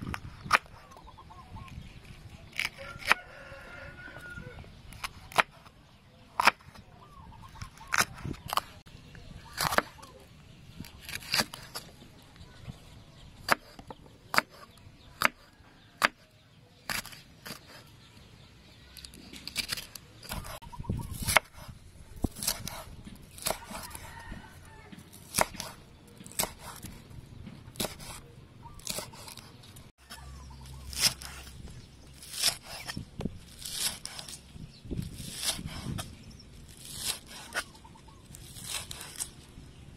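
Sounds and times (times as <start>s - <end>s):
knife chopping on wooden board: 25.0s - 27.0s, 27.6s - 28.2s.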